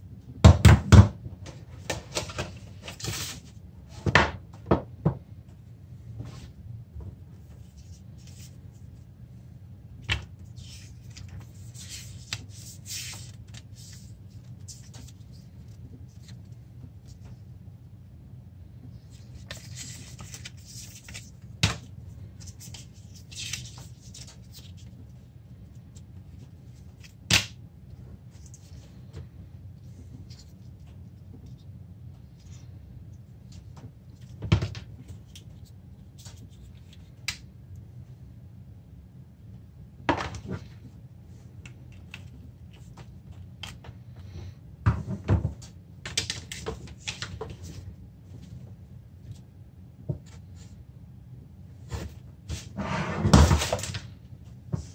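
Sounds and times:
cardboard rustling and scraping: 19.0 - 25.0.

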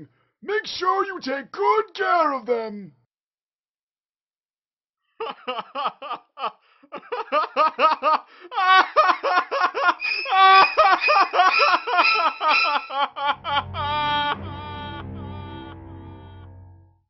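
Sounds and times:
cartoon character high-pitched laugh: 5.2 - 14.4
low rumble: 13.4 - 17.0.

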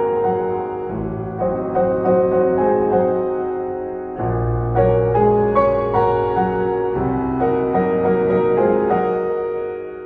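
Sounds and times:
gentle piano music: 0.0 - 10.0.

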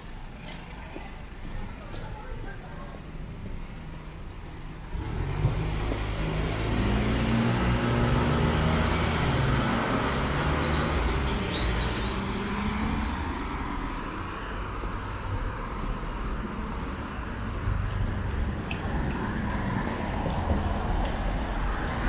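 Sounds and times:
vehicle engines running: 0.0 - 22.0
small birds chirping: 10.6 - 12.9.

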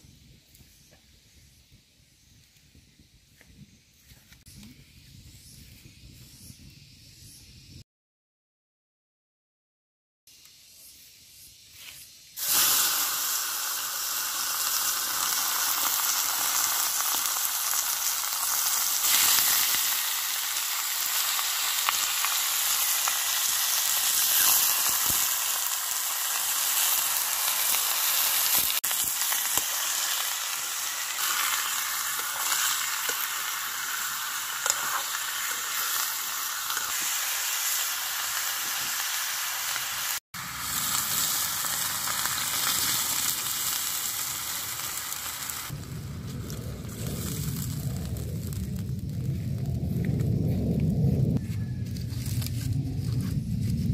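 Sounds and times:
pork sizzling in a wok: 10.3 - 49.2, 51.6 - 53.8.

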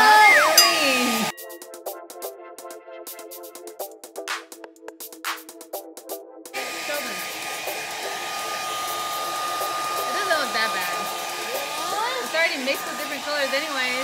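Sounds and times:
hair dryer blowing with high whine: 0.0 - 1.5, 6.6 - 14.0.

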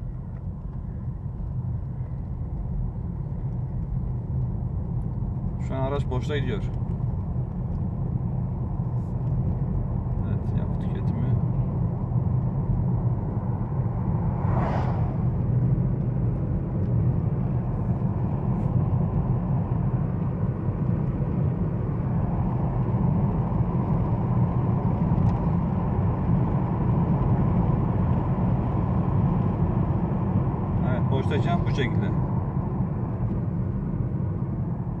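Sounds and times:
tyre and road rumble: 0.0 - 35.0
brief whoosh: 14.1 - 15.5.

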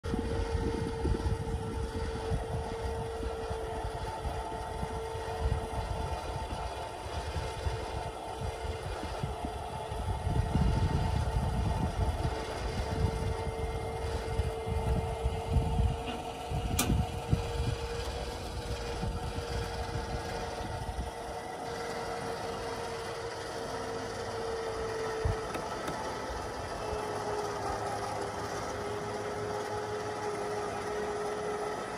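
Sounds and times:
trailer mechanism humming: 0.0 - 31.9
sharp click: 16.7 - 17.0.

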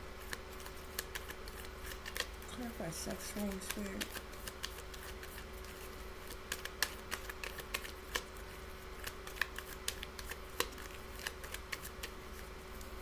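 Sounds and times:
faint hum: 0.0 - 13.0
cards being shuffled: 0.2 - 13.0.

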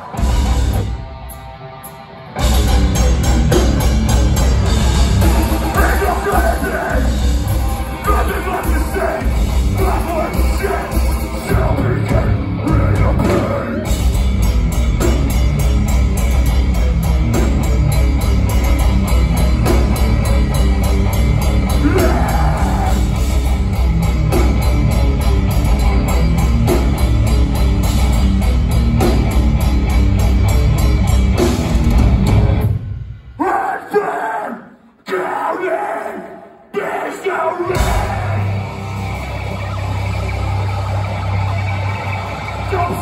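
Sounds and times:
distorted electric guitars: 0.0 - 33.4, 37.6 - 43.0
fast drumming: 2.5 - 32.6.

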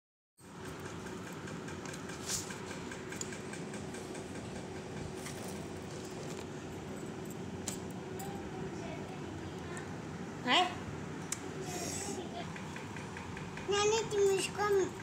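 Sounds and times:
mechanical room hum: 0.4 - 15.0
faint constant tone: 4.8 - 15.0.

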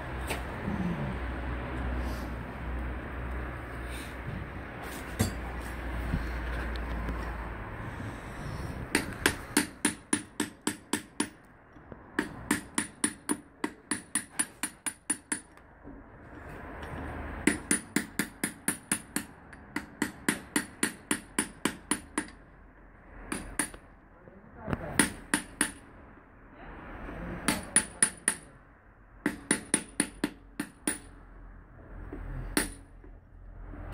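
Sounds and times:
hammer striking metal: 8.9 - 11.4, 29.2 - 31.1, 32.5 - 32.9.

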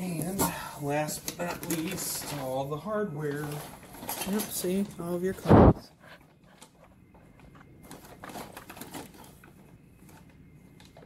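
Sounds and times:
plastic bag crinkling: 7.8 - 11.0.

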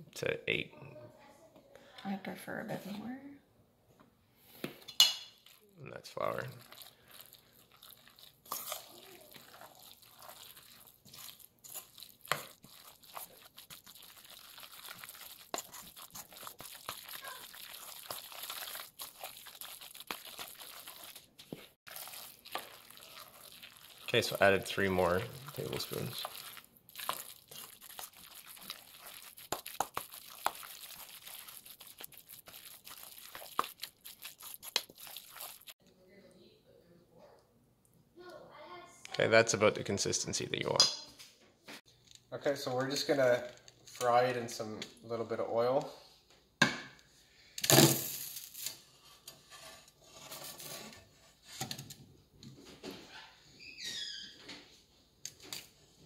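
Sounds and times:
hand squeezing thick batter: 5.4 - 35.8
brief squeak: 53.0 - 54.5.

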